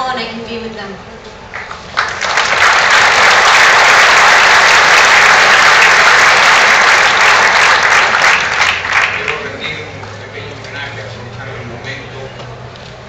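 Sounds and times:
audience applauding: 0:01.5 - 0:10.2.

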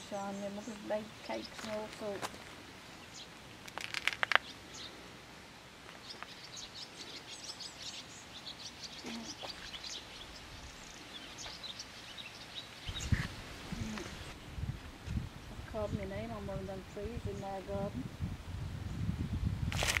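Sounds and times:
small birds chirping: 0:00.0 - 0:05.1, 0:05.8 - 0:14.6.

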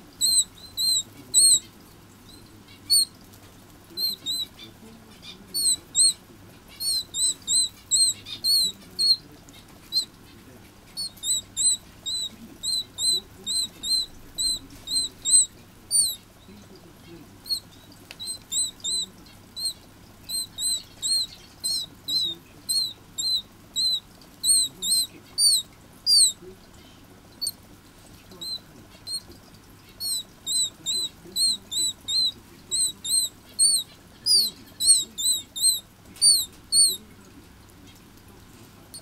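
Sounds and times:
canary chick peeping: 0:00.0 - 0:39.0
downward sliding calls: 0:10.9 - 0:16.2, 0:17.4 - 0:26.4.

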